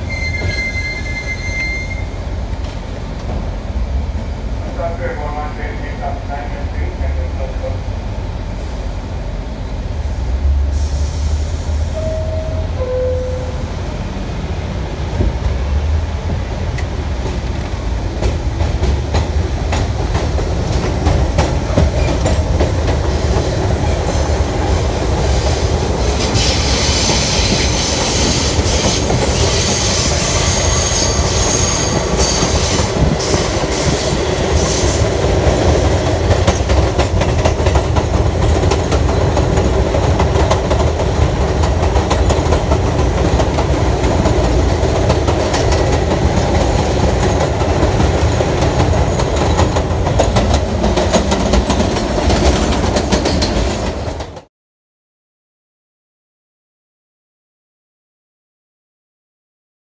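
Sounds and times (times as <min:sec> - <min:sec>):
high wheel squeal: 0:00.0 - 0:02.2
train rumble: 0:00.0 - 0:54.5
wheels clacking over rail joints: 0:26.2 - 0:54.5.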